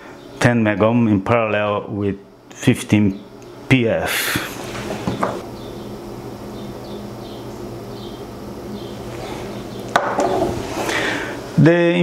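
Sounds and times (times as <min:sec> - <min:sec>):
low room tone hum: 0:00.0 - 0:12.0.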